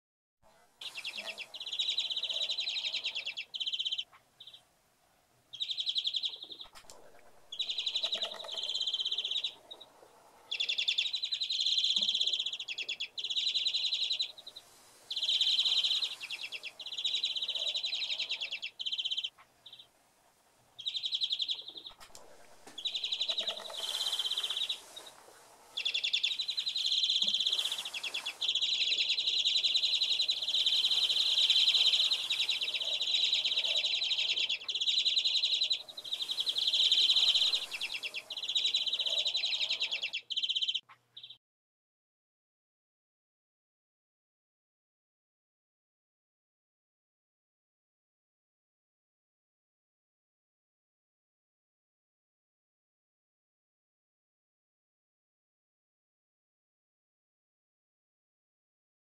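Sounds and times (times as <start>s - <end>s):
finches twittering in trills: 5.6s - 9.8s, 10.5s - 19.9s, 20.8s - 41.3s.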